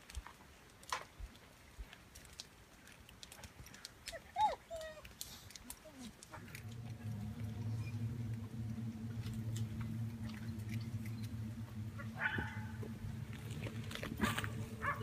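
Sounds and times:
faint clicks: 0:00.0 - 0:07.7
low droning hum: 0:06.2 - 0:15.0.

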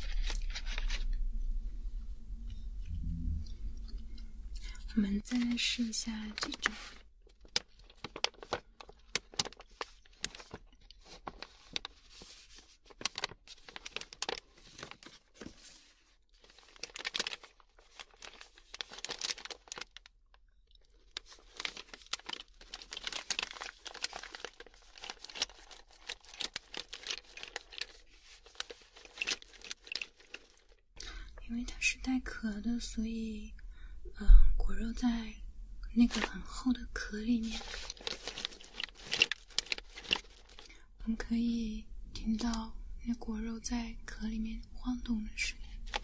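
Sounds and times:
snack packaging crinkling: 0:05.3 - 0:30.8, 0:36.0 - 0:36.4, 0:37.4 - 0:40.8, 0:45.7 - 0:46.0.

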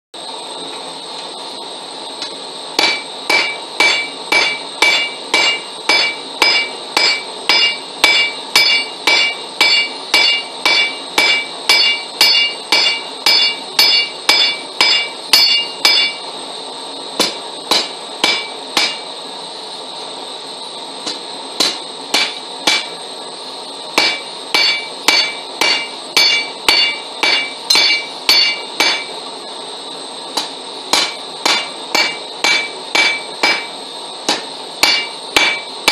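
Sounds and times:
hammer striking steel on anvil: 0:02.2 - 0:16.3, 0:17.2 - 0:19.1, 0:21.0 - 0:23.0, 0:24.0 - 0:29.2, 0:30.3 - 0:35.9
anvil ringing: 0:02.8 - 0:16.2, 0:17.2 - 0:19.1, 0:21.6 - 0:23.0, 0:24.0 - 0:29.2, 0:30.4 - 0:35.9.

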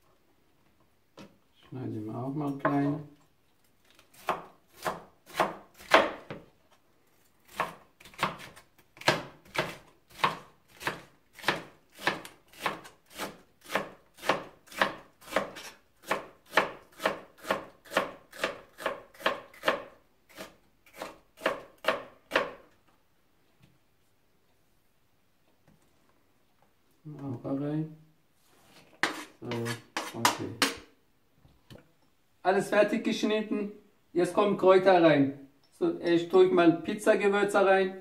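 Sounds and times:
knife chopping on plastic board: 0:04.2 - 0:06.5, 0:07.5 - 0:22.6, 0:29.0 - 0:30.9.

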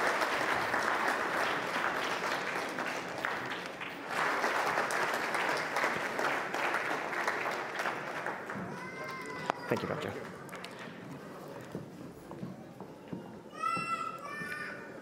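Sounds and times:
audience applauding: 0:00.0 - 0:11.0.

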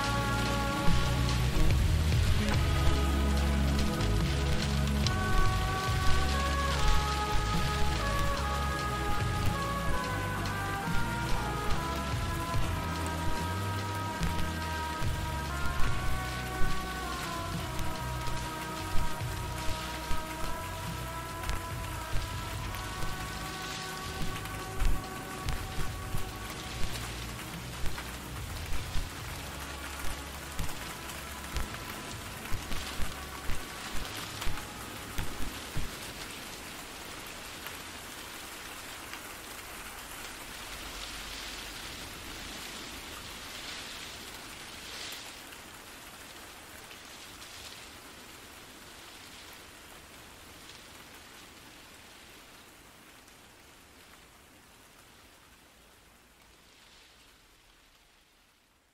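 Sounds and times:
bass-heavy song beat: 0:00.0 - 0:34.3
rain hissing: 0:00.0 - 0:58.9.

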